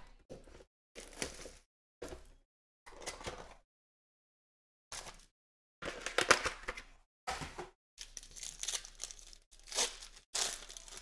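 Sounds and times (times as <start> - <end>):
foil wrapper tearing and crinkling: 8.0 - 11.0.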